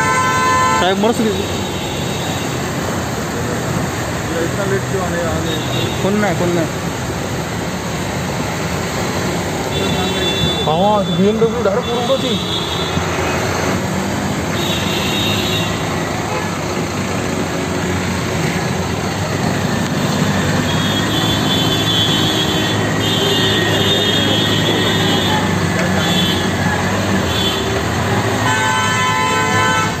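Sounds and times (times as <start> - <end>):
loud horn blast: 0.0 - 2.2, 20.6 - 30.0
vehicle horns tooting: 0.0 - 2.8, 5.4 - 6.4, 9.6 - 13.7, 14.5 - 16.7, 20.4 - 30.0
engine drone: 2.1 - 30.0.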